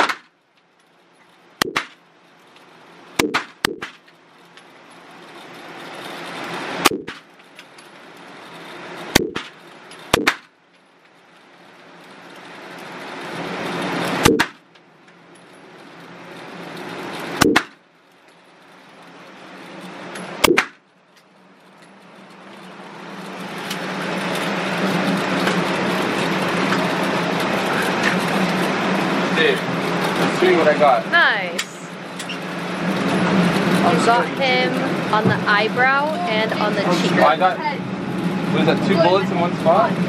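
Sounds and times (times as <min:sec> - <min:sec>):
steady background hum: 0:00.0 - 0:40.0
handgun shots: 0:03.2 - 0:04.0, 0:10.2 - 0:10.5.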